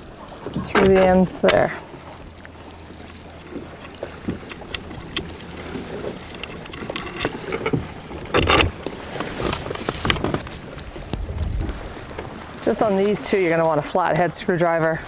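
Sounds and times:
wind on microphone: 3.4 - 14.3.

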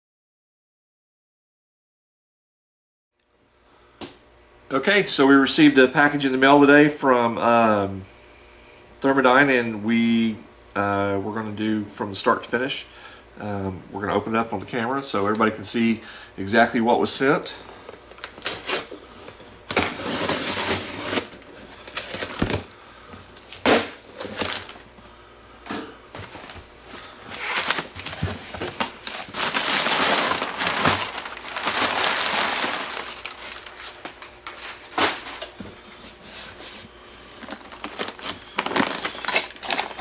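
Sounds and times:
packing paper crinkling: 18.1 - 19.0, 19.7 - 24.8, 26.2 - 40.0
packing tape slit: 18.1 - 19.0, 19.7 - 24.8, 27.3 - 35.6, 37.4 - 40.0.

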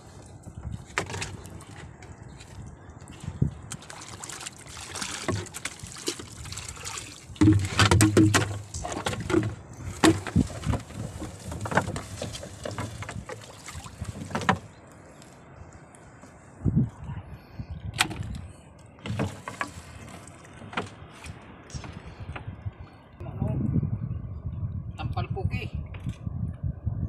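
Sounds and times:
knocks and clatter inside wooden boat: 0.6 - 1.9, 4.9 - 6.3, 6.9 - 14.8, 18.0 - 18.4, 19.0 - 22.6.

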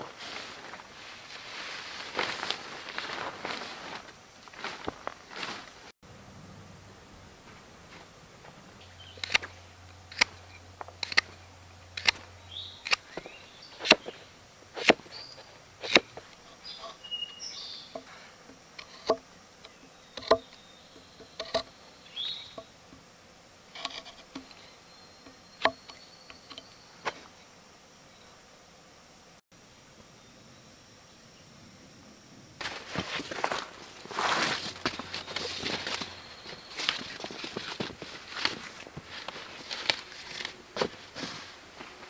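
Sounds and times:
knife chopping wooden stick: 13.8 - 14.2, 14.8 - 15.1, 15.8 - 16.3.

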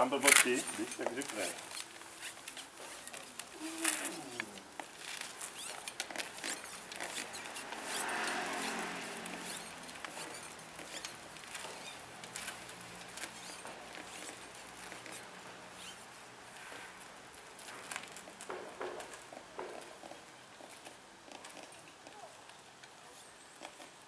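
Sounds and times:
wheelchair rolling over pavement: 0.0 - 24.0
broad rushing sound: 7.2 - 10.0.

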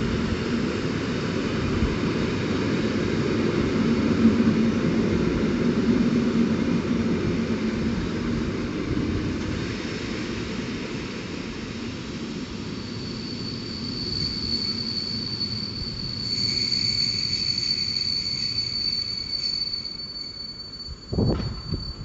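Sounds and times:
electric train rumbling: 0.0 - 22.0
high-pitched wheel squeal: 12.7 - 22.0.

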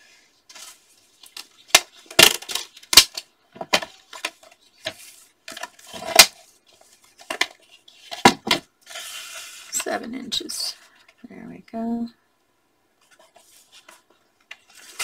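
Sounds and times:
paper rustling: 0.5 - 10.0, 13.0 - 15.0.

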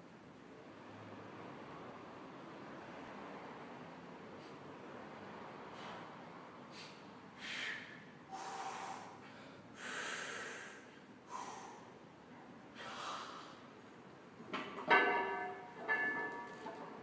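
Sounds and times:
forceful breaths: 5.6 - 12.0.

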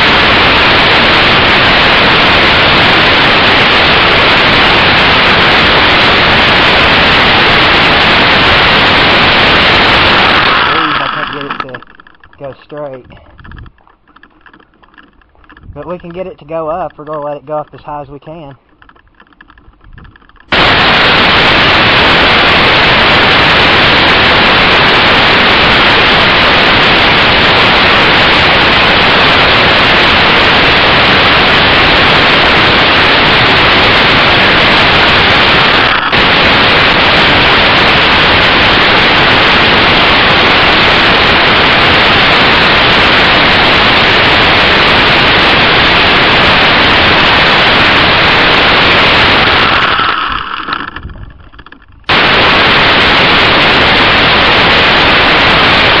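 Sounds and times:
loud rushing noise: 0.0 - 12.4, 20.5 - 51.4, 52.0 - 56.0.

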